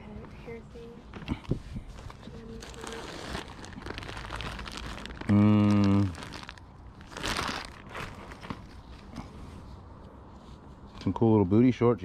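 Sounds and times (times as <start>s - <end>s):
plastic bag crinkling: 1.9s - 9.1s.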